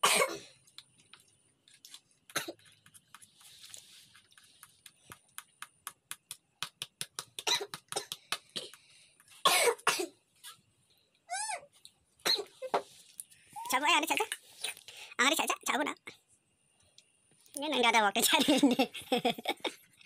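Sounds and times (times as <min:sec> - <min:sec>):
person coughing: 0:00.0 - 0:00.5, 0:09.5 - 0:10.2.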